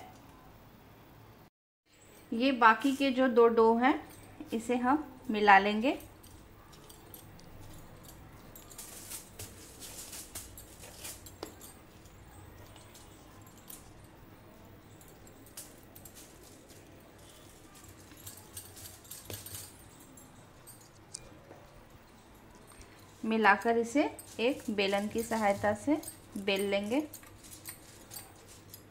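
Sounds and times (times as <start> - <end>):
aluminium foil crinkling: 6.4 - 14.0, 15.1 - 19.9, 22.7 - 28.9.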